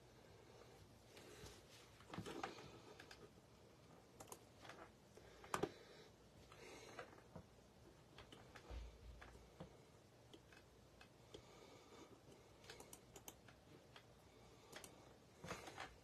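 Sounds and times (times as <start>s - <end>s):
typing on computer keyboard: 4.2s - 4.5s, 12.6s - 14.1s.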